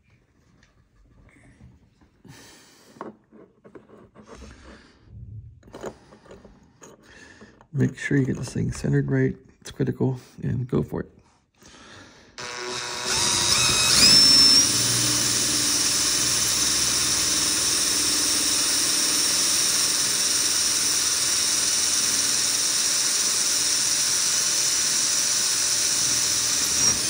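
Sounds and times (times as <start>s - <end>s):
electric drill whining: 12.4s - 27.0s.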